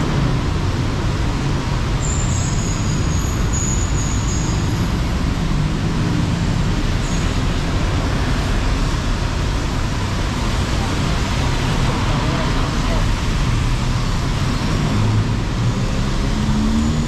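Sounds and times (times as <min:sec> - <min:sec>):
traffic on wet roads: 0:00.0 - 0:17.0.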